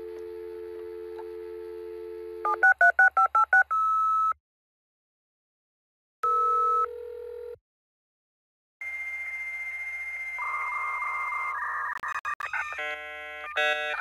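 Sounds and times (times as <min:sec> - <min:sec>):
dial tone: 0:00.0 - 0:04.4, 0:06.2 - 0:07.6
touch-tone dialling: 0:02.4 - 0:04.3.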